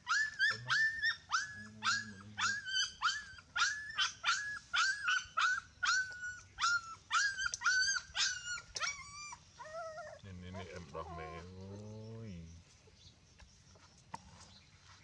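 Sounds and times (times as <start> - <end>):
puppy whining: 0.0 - 11.6.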